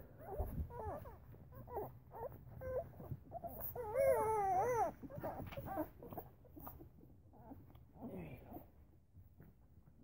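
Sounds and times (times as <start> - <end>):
puppies whimpering and squealing: 0.0 - 8.0.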